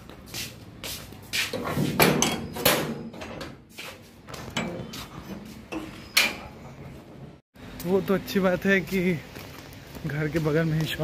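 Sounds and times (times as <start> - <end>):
footsteps on paving: 0.0 - 1.6, 8.7 - 11.0
metal gate clanking and rattling: 1.7 - 3.6, 4.5 - 6.6.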